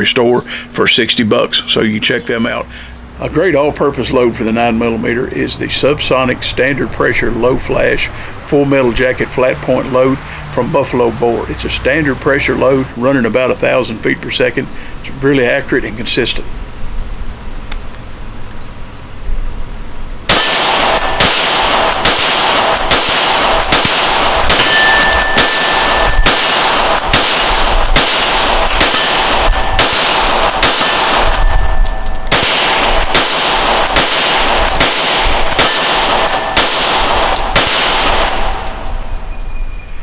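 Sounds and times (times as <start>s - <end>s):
pistol shots: 20.3s - 39.0s.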